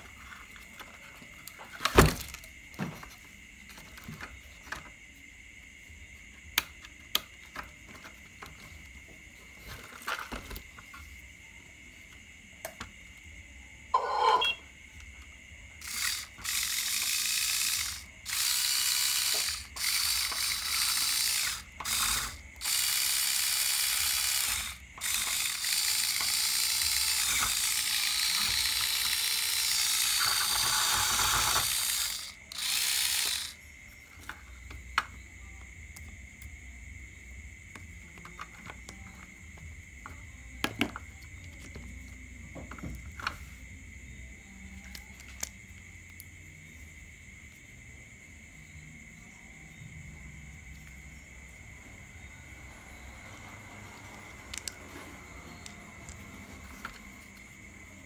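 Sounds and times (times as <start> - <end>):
small electric motor whirring: 15.8 - 33.6.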